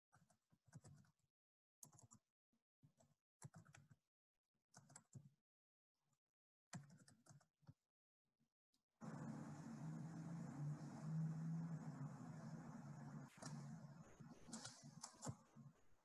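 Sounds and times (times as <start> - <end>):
keyboard typing: 13.3 - 15.8.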